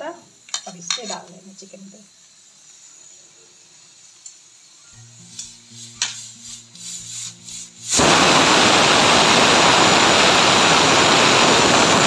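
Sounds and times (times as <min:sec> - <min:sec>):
pressure cooker whistle: 0:07.7 - 0:12.0.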